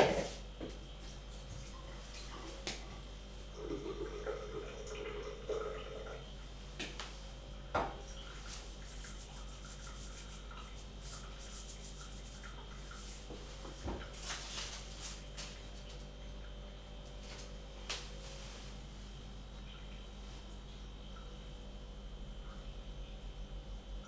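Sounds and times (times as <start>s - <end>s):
spice shaker shaking: 8.7s - 13.2s.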